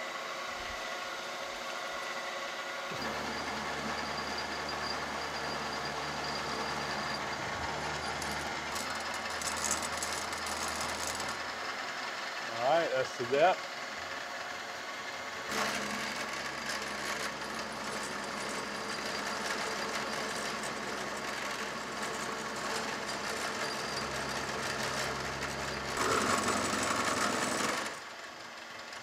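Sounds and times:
milling machine spindle hum: 2.9s - 11.9s, 15.4s - 28.0s
end mill cutting steel: 2.9s - 13.4s, 14.0s - 28.0s.

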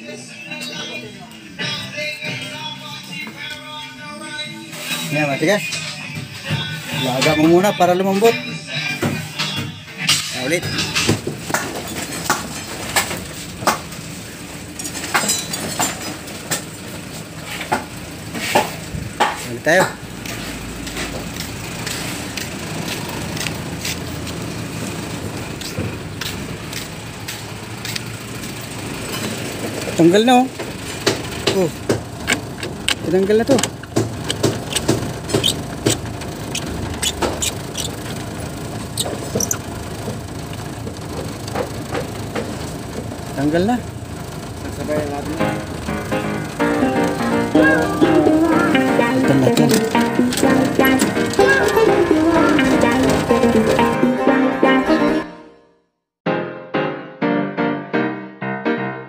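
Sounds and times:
parts clicking and knocking: 30.5s - 43.2s.

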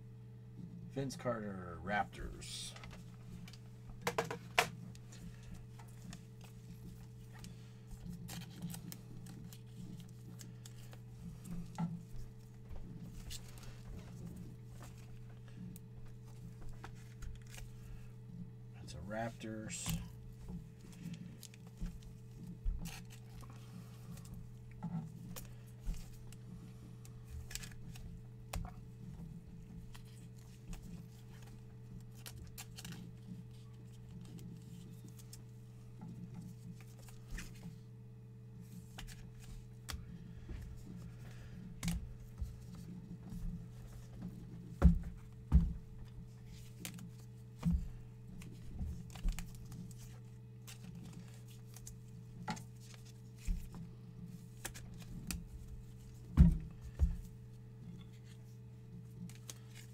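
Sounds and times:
steady low hum: 0.0s - 59.9s
plastic knocks: 4.0s - 4.7s.

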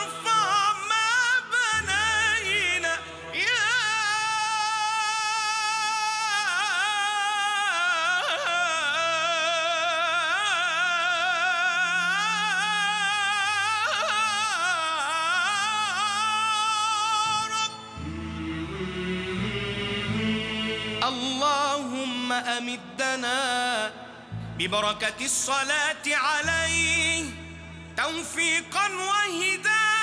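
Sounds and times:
men chanting: 0.0s - 6.0s, 18.0s - 23.2s
man singing solo with vibrato: 0.0s - 30.0s.

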